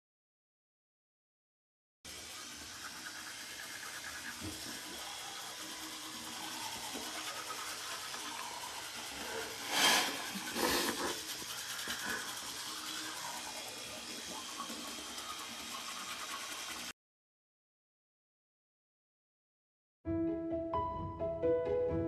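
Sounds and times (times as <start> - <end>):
electric toothbrush buzzing: 2.1 - 16.9
toothbrushes scrubbing teeth: 2.1 - 16.9.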